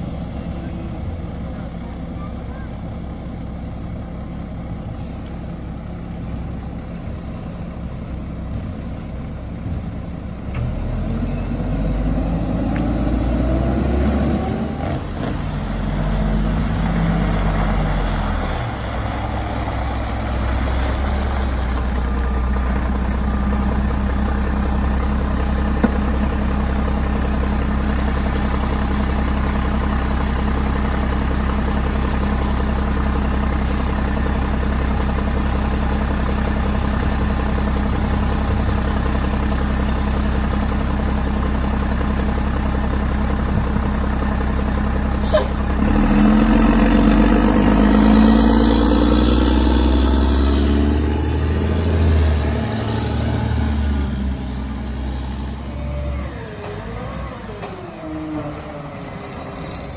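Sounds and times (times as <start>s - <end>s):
garbage truck diesel engine idling: 0.0s - 4.6s, 5.3s - 10.5s, 16.6s - 47.6s.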